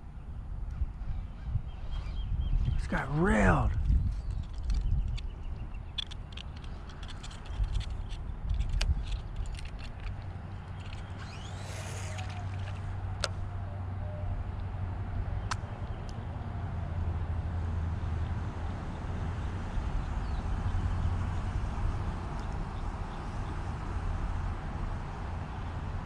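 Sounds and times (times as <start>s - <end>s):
wind buffeting microphone: 0.0s - 26.0s
sharp clicks and knocks: 5.9s - 13.4s.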